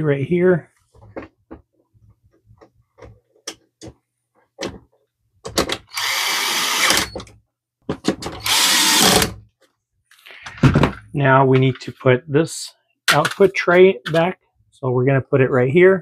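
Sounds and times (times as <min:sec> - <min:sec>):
cordless drill driving screw: 0:05.9 - 0:07.2, 0:08.4 - 0:09.4
screw and bit clicking: 0:08.4 - 0:09.3.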